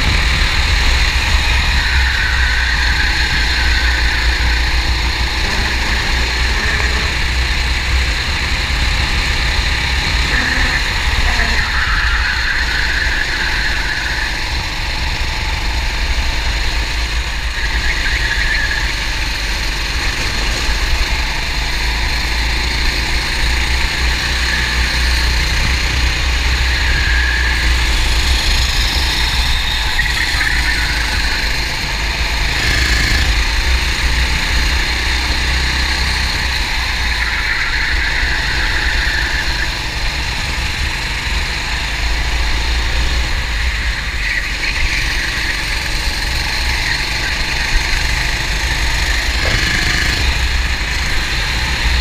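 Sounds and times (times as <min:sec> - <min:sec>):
heavy low rumble: 0:00.0 - 0:11.6
kart engine revving: 0:00.0 - 0:52.0.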